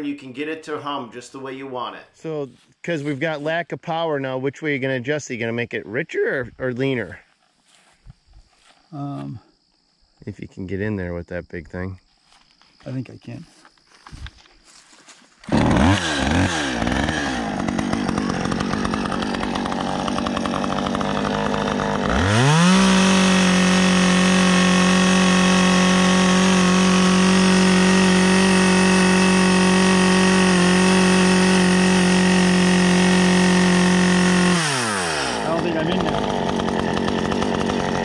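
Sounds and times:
chainsaw engine running: 0:15.4 - 0:38.0
chainsaw pull-started: 0:15.4 - 0:38.0.

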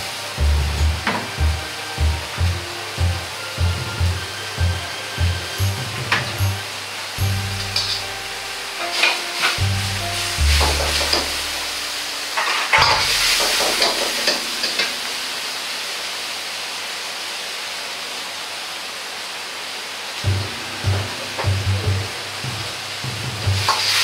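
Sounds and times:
gas burner hissing: 0:00.0 - 0:18.1, 0:19.4 - 0:24.0
metal ladle scraping a wok: 0:07.4 - 0:15.6, 0:23.6 - 0:24.0.

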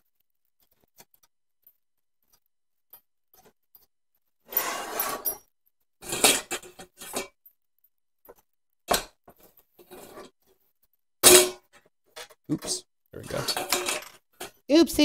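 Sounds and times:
metal frame scraping: 0:04.5 - 0:05.4, 0:13.2 - 0:14.1
steel bowls rattling: 0:12.2 - 0:15.0.

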